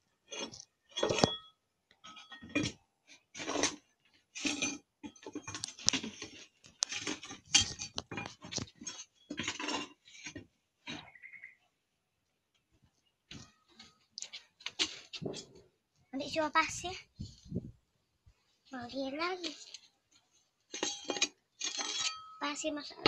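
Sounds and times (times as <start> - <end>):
play dishes clattering: 0.3 - 2.8, 20.7 - 22.4.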